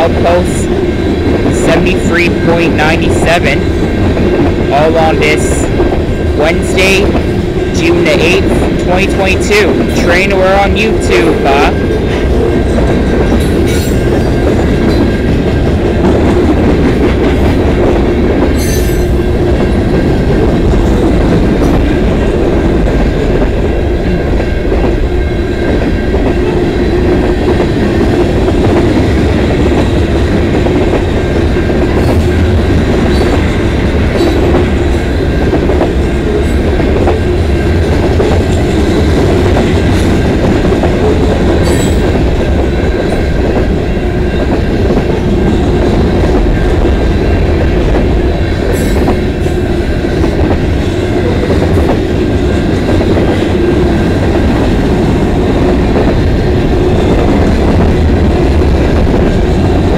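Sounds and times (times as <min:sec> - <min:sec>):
freight train wheels rumbling: 0:00.0 - 0:59.9.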